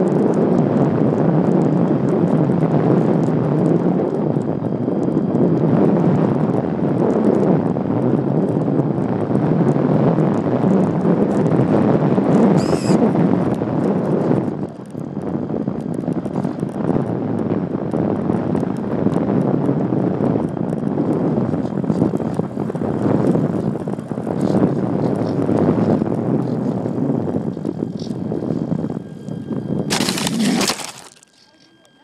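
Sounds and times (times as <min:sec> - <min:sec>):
wind rushing over microphone: 0:00.0 - 0:31.2
brief high whine: 0:12.6 - 0:13.0.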